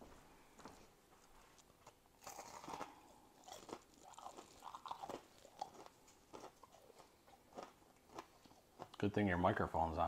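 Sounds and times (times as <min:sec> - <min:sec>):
person chewing crunchy snack: 0:01.6 - 0:09.1.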